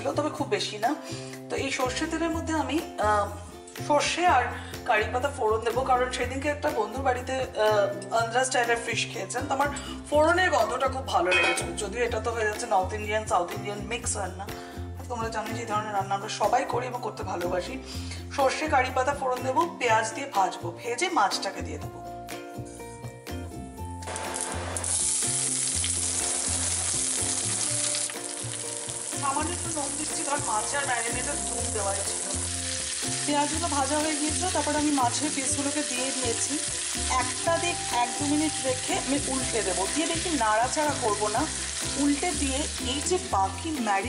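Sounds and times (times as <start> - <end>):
hot oil sizzling: 24.0 - 44.0.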